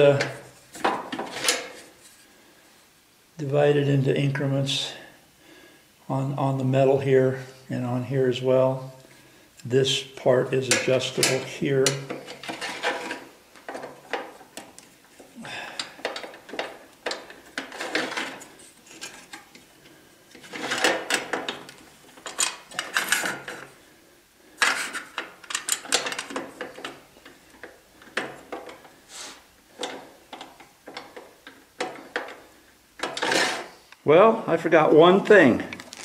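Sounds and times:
metal parts clicking and rattling: 0:10.7 - 0:19.6, 0:20.3 - 0:23.7, 0:24.6 - 0:28.8.

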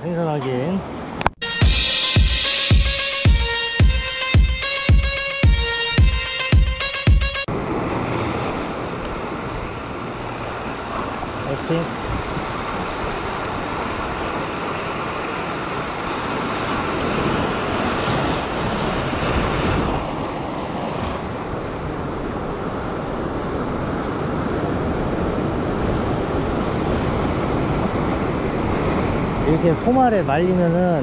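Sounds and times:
wind buffeting microphone: 0:07.5 - 0:30.2
ocean surf over rocks: 0:07.5 - 0:31.0.

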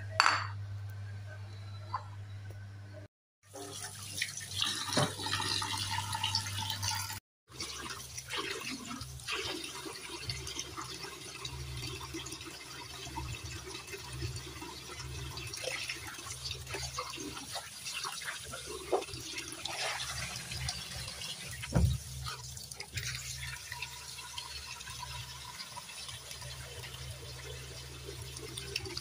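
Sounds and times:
chicken rubbed and rinsed by hand: 0:05.8 - 0:29.0.

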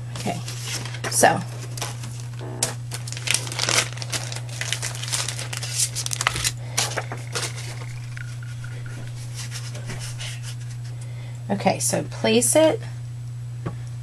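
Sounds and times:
paper and plastic mats rustling: 0:00.0 - 0:10.9
steady low hum: 0:00.0 - 0:14.0.

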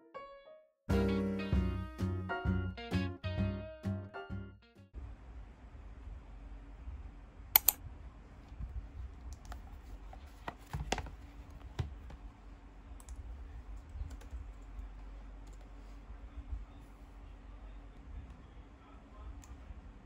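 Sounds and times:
faint steady hum: 0:05.0 - 0:20.0
laptop keyboard typing: 0:07.6 - 0:07.8, 0:13.0 - 0:15.7
sharp clicks: 0:07.6 - 0:07.8
tablet case handling: 0:09.5 - 0:12.2.

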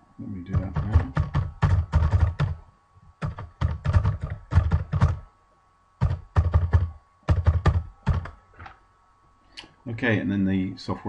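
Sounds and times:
typing on computer keyboard: 0:00.5 - 0:02.6, 0:03.2 - 0:05.2, 0:06.0 - 0:08.4.

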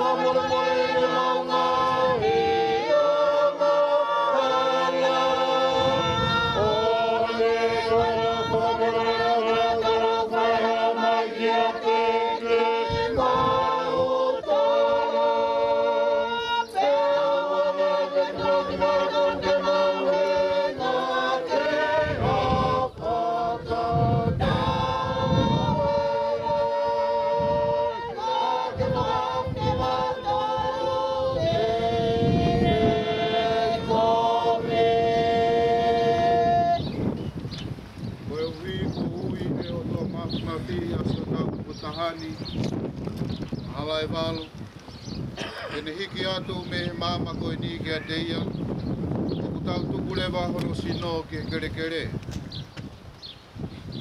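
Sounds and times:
group singing a hymn a cappella: 0:00.0 - 0:42.8.

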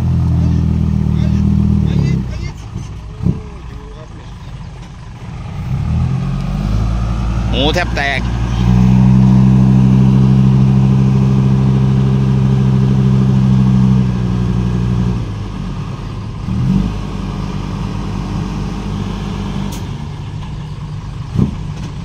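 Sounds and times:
diesel truck engine revving: 0:00.0 - 0:22.0.

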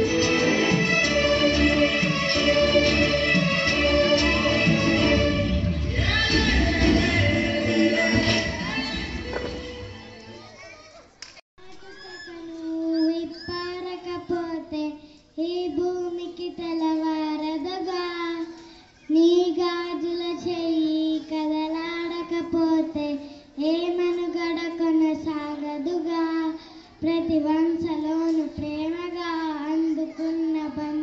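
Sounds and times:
girl singing into a microphone: 0:11.8 - 0:31.0.

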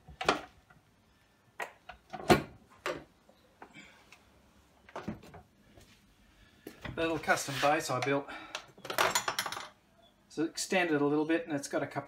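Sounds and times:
metal parts clicking and knocking: 0:08.0 - 0:09.8.

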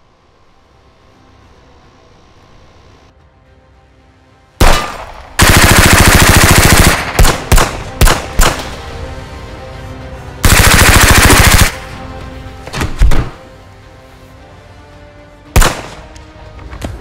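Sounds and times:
single gunshots: 0:04.6 - 0:05.5, 0:06.9 - 0:08.7, 0:12.8 - 0:13.4, 0:15.6 - 0:16.1
automatic gunfire: 0:04.6 - 0:08.6, 0:10.4 - 0:11.8, 0:15.6 - 0:16.0.

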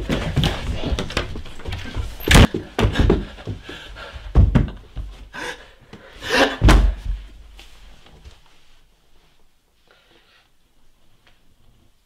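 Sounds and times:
heavy panting breath: 0:02.9 - 0:04.4.

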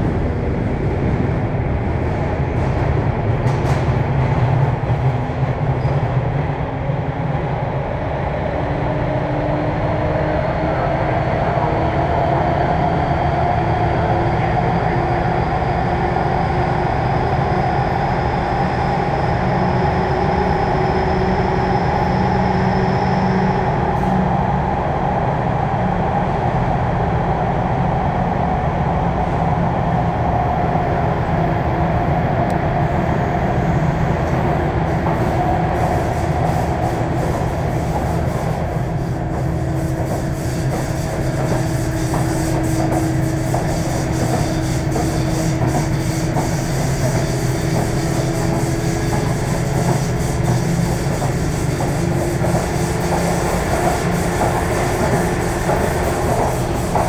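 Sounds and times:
electric train inverter whine: 0:00.0 - 0:57.0
train wheels and motors rumbling: 0:00.0 - 0:57.0.

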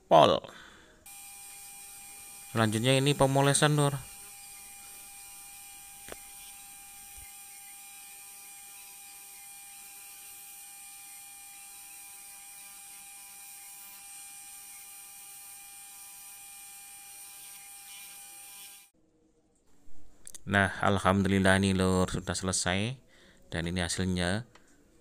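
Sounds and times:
polishing wheel whining: 0:01.1 - 0:10.4.

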